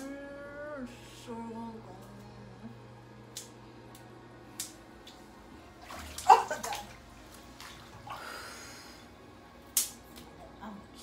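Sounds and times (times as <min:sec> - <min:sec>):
water sloshing in bathtub: 0:05.0 - 0:08.9.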